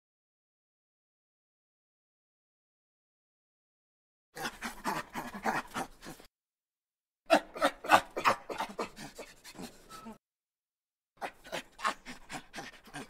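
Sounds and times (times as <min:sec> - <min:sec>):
rapid panting animal calls: 0:04.4 - 0:06.3, 0:11.2 - 0:13.0.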